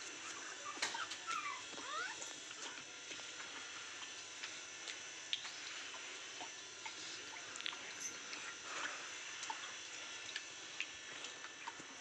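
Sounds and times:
puppies whimpering: 0:00.1 - 0:02.9.

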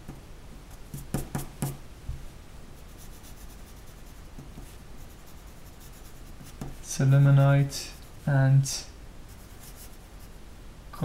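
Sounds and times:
pencil scratching on paper: 0:02.8 - 0:06.8, 0:09.3 - 0:10.3.

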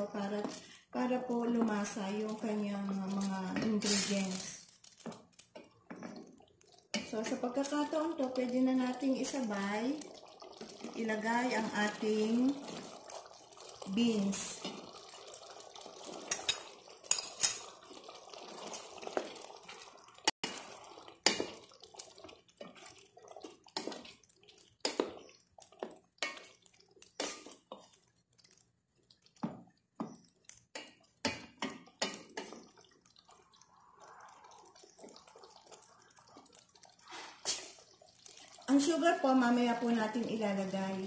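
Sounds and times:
stirring thick stew: 0:00.0 - 0:41.0.

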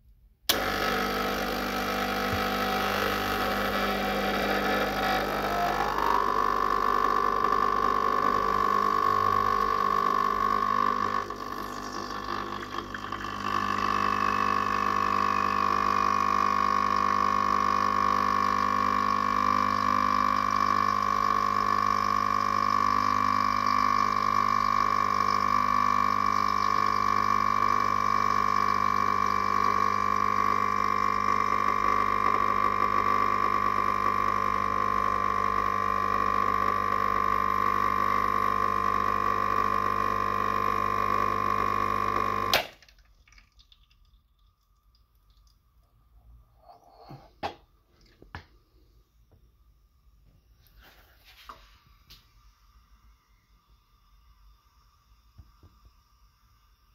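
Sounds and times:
espresso machine pump humming: 0:00.5 - 0:42.8.

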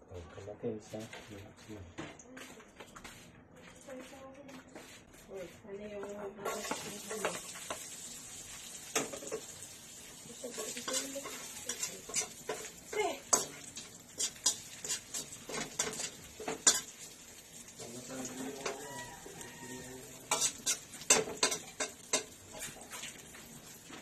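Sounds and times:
garlic sizzling in hot oil: 0:06.4 - 0:24.0
spatula scraping a pan: 0:06.4 - 0:24.0.

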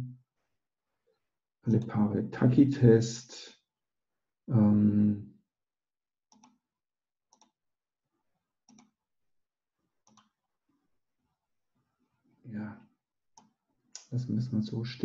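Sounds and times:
computer mouse clicks: 0:06.3 - 0:06.6, 0:07.3 - 0:07.6, 0:08.7 - 0:08.9, 0:10.1 - 0:10.3.

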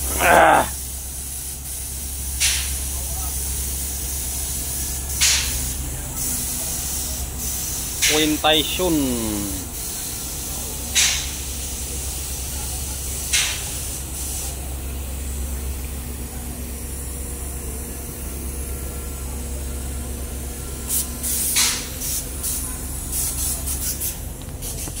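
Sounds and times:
paint sprayer hissing: 0:00.0 - 0:02.6, 0:06.3 - 0:11.6.

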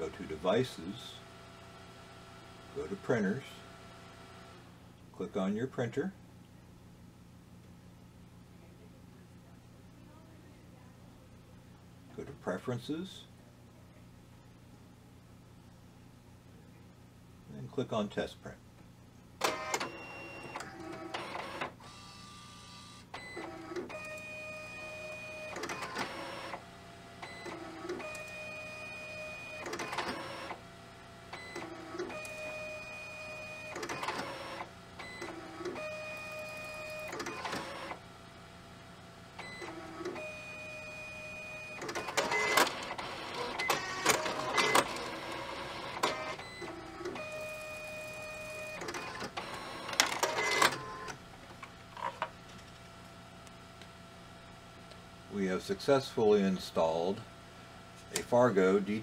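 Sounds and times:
card printer motors whining: 0:19.4 - 0:38.6, 0:39.3 - 0:52.9.

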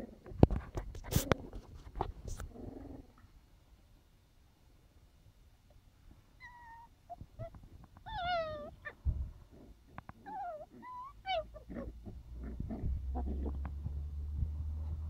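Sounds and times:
puppies yelping and whining: 0:06.4 - 0:09.0, 0:10.0 - 0:13.7.

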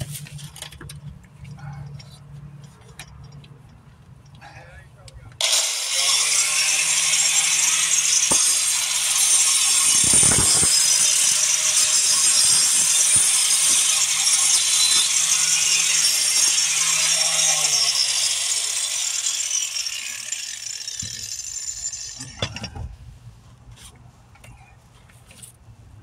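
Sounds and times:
angle grinder grinding brick: 0:05.4 - 0:22.7.

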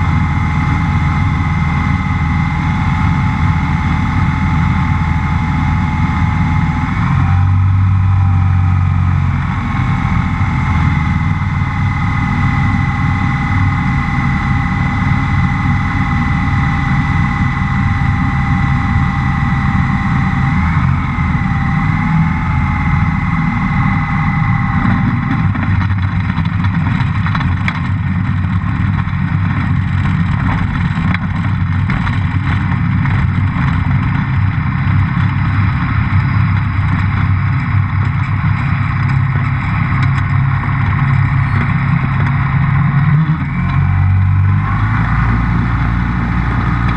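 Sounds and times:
aircraft engine and propeller: 0:00.0 - 0:46.9
steady whine: 0:00.0 - 0:46.9
knocks and rattles: 0:24.8 - 0:42.4.

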